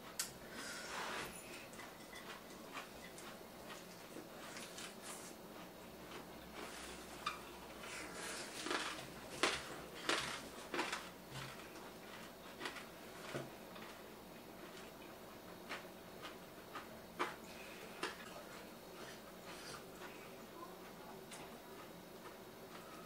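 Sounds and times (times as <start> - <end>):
chopsticks and dishes clicking: 1.7 - 3.8.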